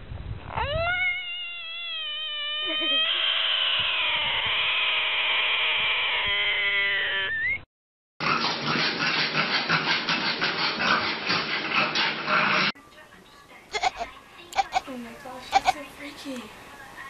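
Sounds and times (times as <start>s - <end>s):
frog screaming: 0.5s - 7.6s.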